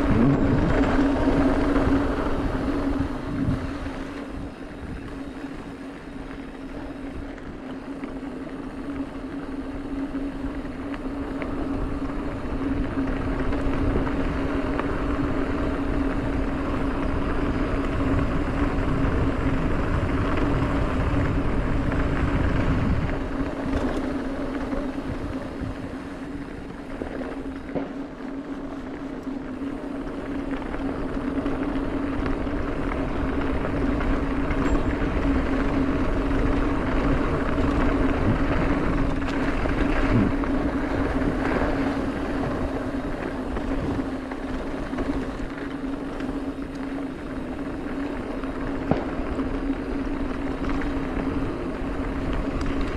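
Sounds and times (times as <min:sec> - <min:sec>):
wind on microphone: 0:00.0 - 0:05.6, 0:17.6 - 0:26.3, 0:32.7 - 0:45.5
bicycle freehub buzzing: 0:00.0 - 0:52.9.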